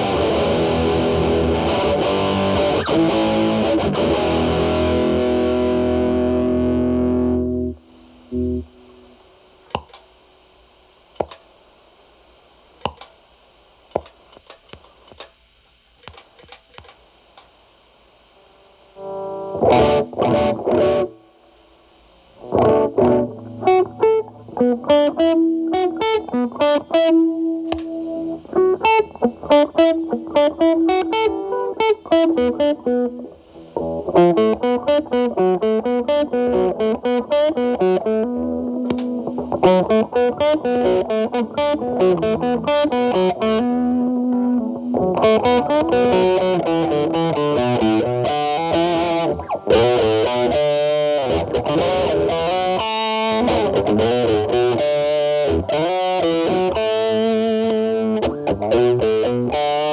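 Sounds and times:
distorted electric guitar: 0.0s - 15.3s, 16.0s - 59.9s.

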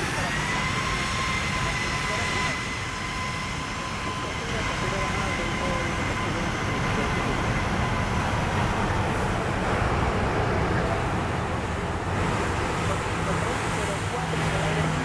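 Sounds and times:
jet engines at low power: 0.0s - 15.0s.

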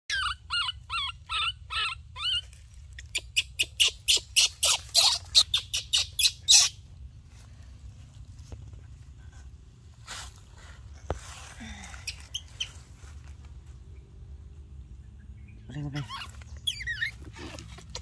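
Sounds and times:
baby monkey crying: 0.1s - 6.8s, 15.7s - 18.0s.

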